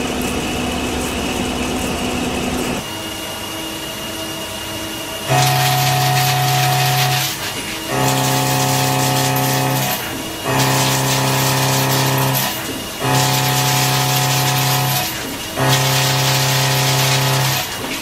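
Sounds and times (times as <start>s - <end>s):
milling cutter whining into steel: 4.8s - 18.0s.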